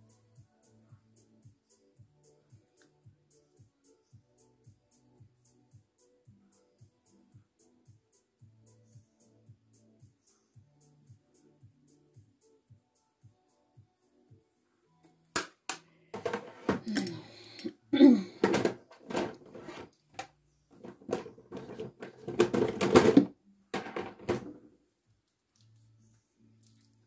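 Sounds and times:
plastic cases clicking and clattering: 0:20.8 - 0:24.5.

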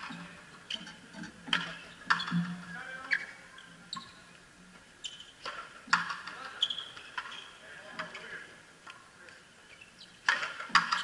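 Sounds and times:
balls struck by racquets: 0:01.2 - 0:02.6, 0:05.4 - 0:07.3, 0:10.2 - 0:11.0.

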